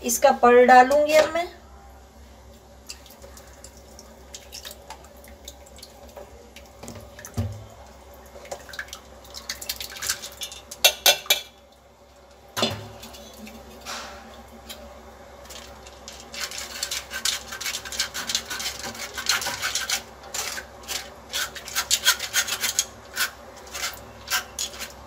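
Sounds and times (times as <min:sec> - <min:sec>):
pulp dripping through strainer: 0:02.8 - 0:14.8.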